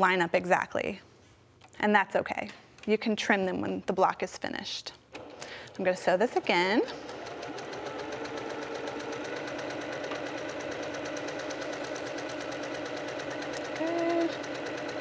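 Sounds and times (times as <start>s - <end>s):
sewing machine stitching: 5.2s - 15.0s.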